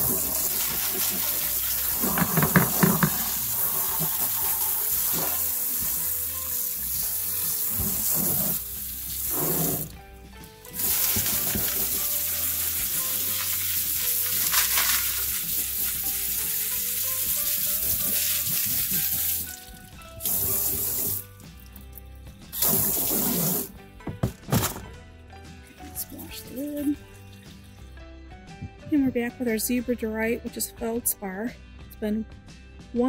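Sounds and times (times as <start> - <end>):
water spraying from hose nozzle: 0.0 - 10.0, 10.6 - 21.7, 22.5 - 23.7.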